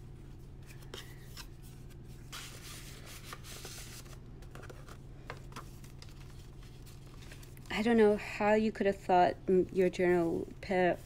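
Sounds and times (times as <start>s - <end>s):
steady low hum: 0.0s - 11.0s
paper rustling and rubbing: 0.2s - 7.7s.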